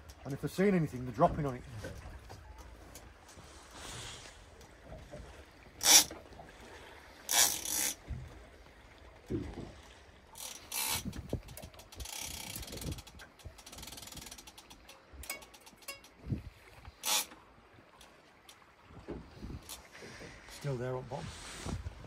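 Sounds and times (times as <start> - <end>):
fishing reel clicking and whirring: 5.8 - 6.2, 7.3 - 8.0, 10.3 - 16.2, 17.0 - 17.4.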